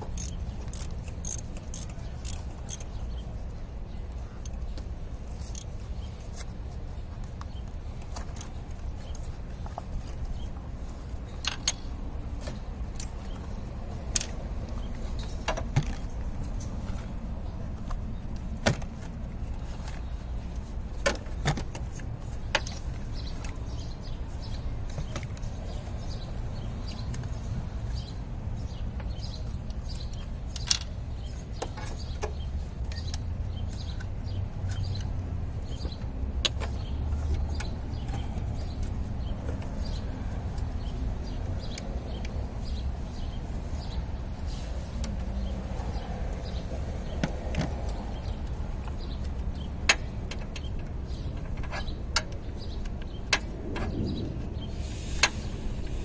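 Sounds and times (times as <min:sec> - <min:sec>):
steady low rumble: 0:52.3 - 0:56.0.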